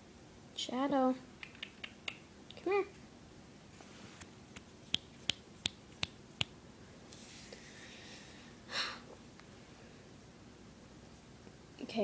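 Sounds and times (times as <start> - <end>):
finger snaps: 1.4 - 2.3, 4.2 - 6.6.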